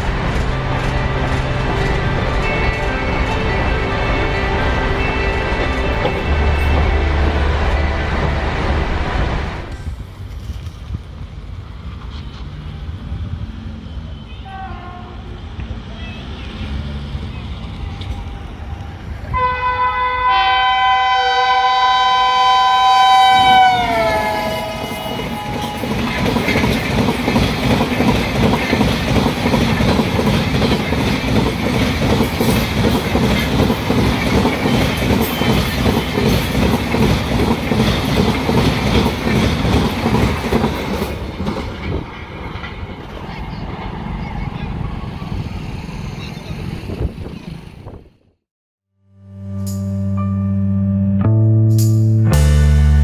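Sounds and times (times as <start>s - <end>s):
train wheels rumbling and clattering: 0.0s - 14.0s, 23.3s - 48.2s
locomotive horn bending down: 19.3s - 26.0s.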